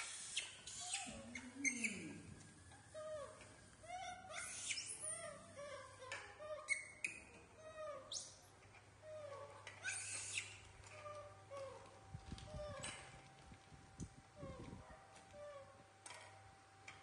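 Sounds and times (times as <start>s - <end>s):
baby monkeys chirping: 0.1s - 2.2s, 3.9s - 8.4s, 9.2s - 10.6s.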